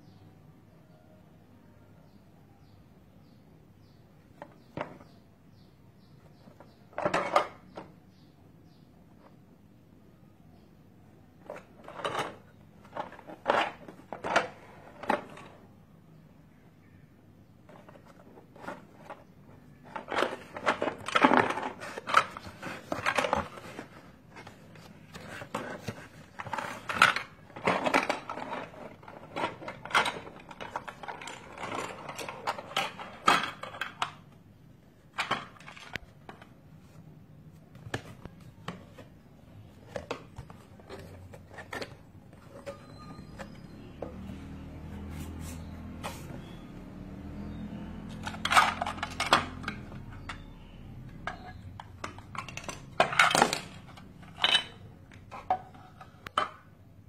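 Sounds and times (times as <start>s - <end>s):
plastic parts handled: 11.3s - 15.7s, 17.6s - 46.7s, 47.4s - 56.8s.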